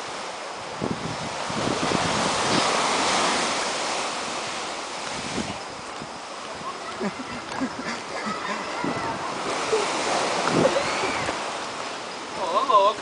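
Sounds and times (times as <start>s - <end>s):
ocean surf breaking: 0.0s - 13.0s.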